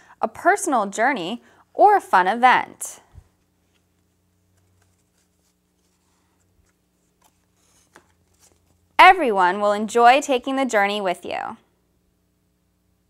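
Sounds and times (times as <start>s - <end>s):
faint steady hum: 0.0s - 13.0s
paper pages clicking: 6.6s - 8.7s.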